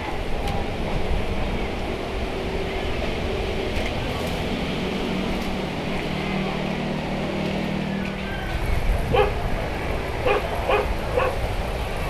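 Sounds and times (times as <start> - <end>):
animal calls: 9.1 - 9.4, 10.2 - 11.4.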